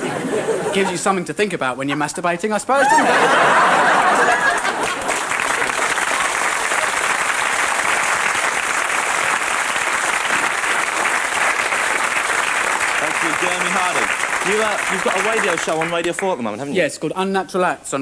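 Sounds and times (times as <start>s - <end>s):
large audience applauding: 2.9s - 16.5s.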